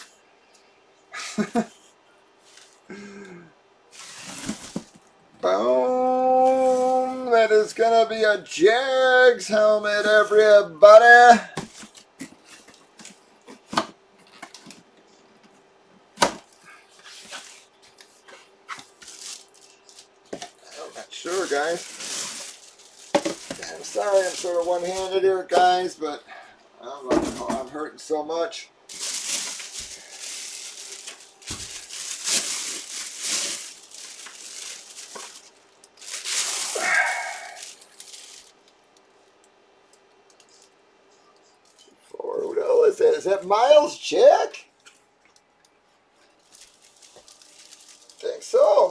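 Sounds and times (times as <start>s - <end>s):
faint steady hum: 0.0s - 48.9s
plastic crinkling: 3.9s - 5.1s, 16.4s - 25.9s, 28.9s - 40.7s, 46.1s - 48.9s.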